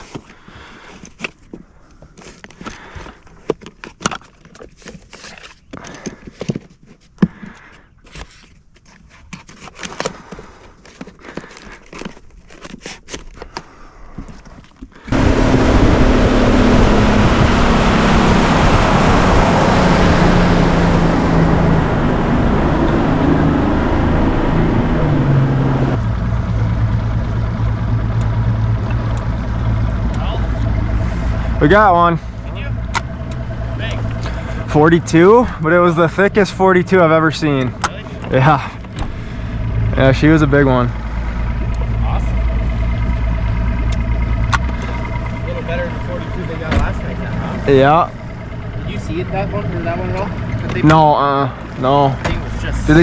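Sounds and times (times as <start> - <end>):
boat motor running: 15.1 - 53.0.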